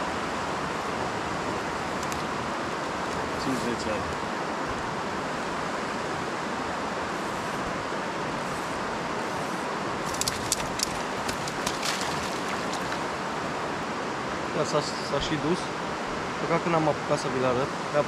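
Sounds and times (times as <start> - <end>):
water rushing over weir: 8.9 - 14.3
sharp clicks: 10.1 - 11.8.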